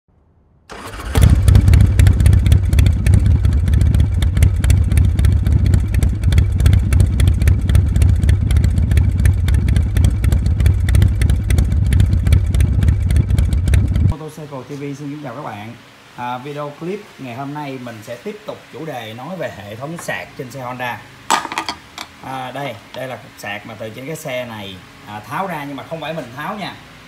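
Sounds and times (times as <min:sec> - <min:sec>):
motorcycle engine running: 0:00.7 - 0:14.1.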